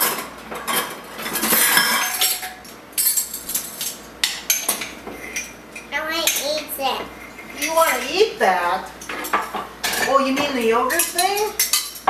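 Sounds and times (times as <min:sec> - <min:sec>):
dishes clinking and knocking: 0:00.0 - 0:05.6, 0:06.2 - 0:08.1, 0:09.0 - 0:12.0
young child's voice: 0:05.9 - 0:07.2.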